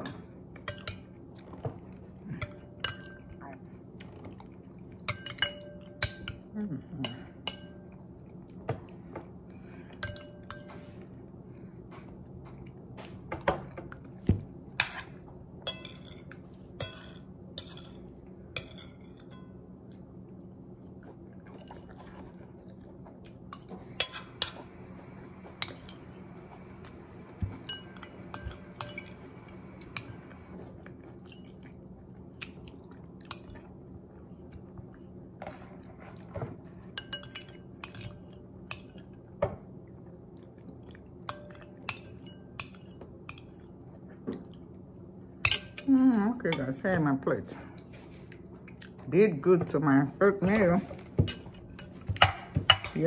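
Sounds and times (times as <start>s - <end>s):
chewing: 30.8s - 33.5s, 48.2s - 49.1s.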